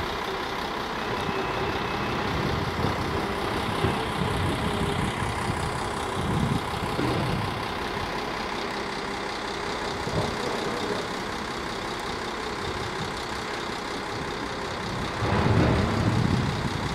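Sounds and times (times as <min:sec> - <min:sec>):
diesel locomotive engine: 0:00.0 - 0:16.9
train coaches rolling on rails: 0:00.0 - 0:16.9
low rumble: 0:14.8 - 0:16.9.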